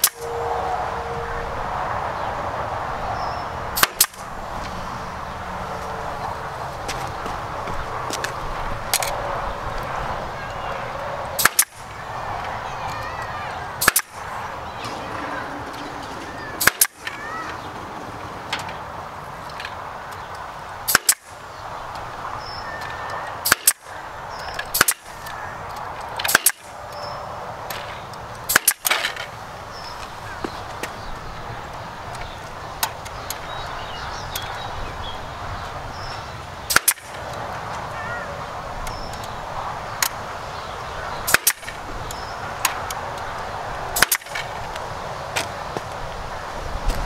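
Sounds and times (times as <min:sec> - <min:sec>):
staple gun firing: 0:03.8 - 0:04.2, 0:11.4 - 0:11.8, 0:13.8 - 0:14.2, 0:16.6 - 0:17.0, 0:20.9 - 0:21.2, 0:23.4 - 0:23.8, 0:24.7 - 0:25.1, 0:26.2 - 0:26.7, 0:28.5 - 0:29.0, 0:36.7 - 0:37.1, 0:41.3 - 0:41.8, 0:44.0 - 0:44.4.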